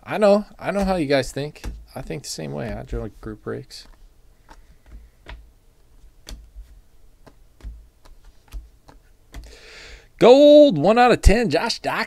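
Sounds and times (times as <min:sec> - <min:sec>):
trading cards clicking: 0:07.2 - 0:09.6.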